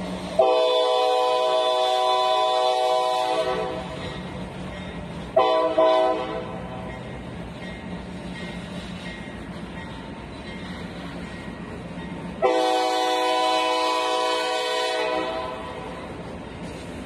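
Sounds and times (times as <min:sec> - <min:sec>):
train horn blasts: 0:00.4 - 0:04.0, 0:05.3 - 0:06.6, 0:12.4 - 0:16.0.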